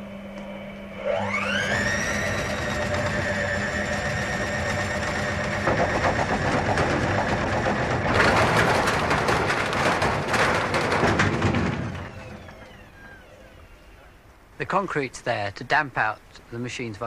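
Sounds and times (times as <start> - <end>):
washing machine motor whine: 0.0 - 14.3
shaking cabinet rattling: 3.8 - 12.7.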